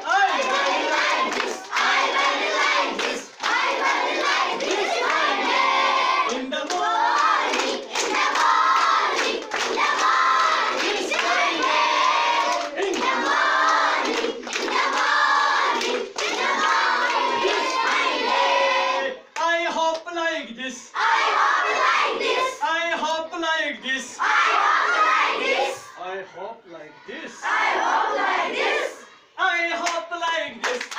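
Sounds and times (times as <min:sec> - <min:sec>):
girls singing in unison: 0:00.1 - 0:19.2, 0:21.0 - 0:22.6, 0:24.2 - 0:25.9, 0:27.4 - 0:29.1
hand claps: 0:00.2 - 0:05.3, 0:06.3 - 0:18.1, 0:29.8 - 0:30.0, 0:30.6 - 0:30.9.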